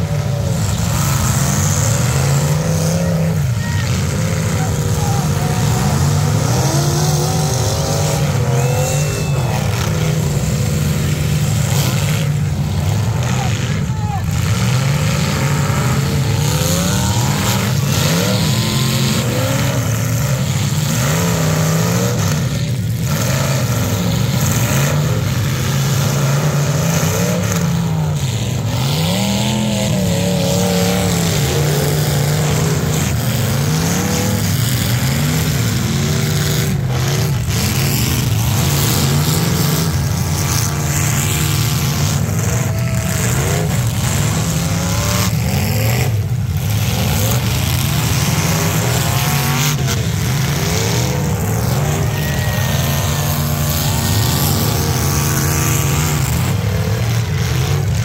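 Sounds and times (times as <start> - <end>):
car engines revving hard: 0.0 - 58.0.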